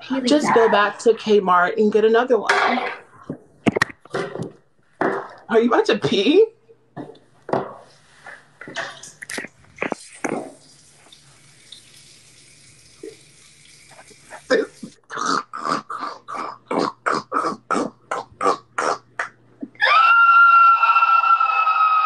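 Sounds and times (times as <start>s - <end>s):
urine stream hissing: 9.9s - 15.0s
high-pitched scream: 19.8s - 22.0s.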